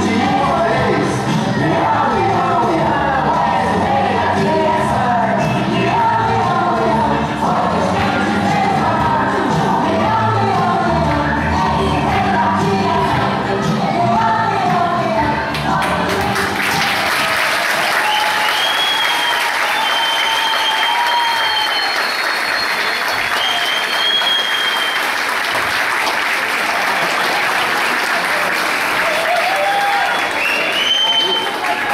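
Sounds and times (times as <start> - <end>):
audience applauding: 15.5 - 31.9.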